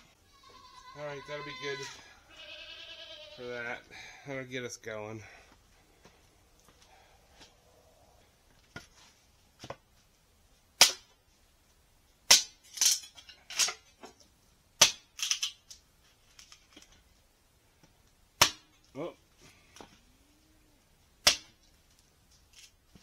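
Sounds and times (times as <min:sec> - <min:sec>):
kindling wood snapping: 0:21.2 - 0:21.8.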